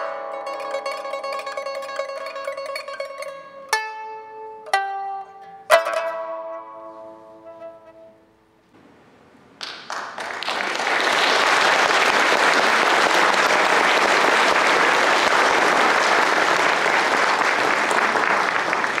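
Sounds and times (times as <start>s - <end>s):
audience applauding: 9.6s - 19.0s.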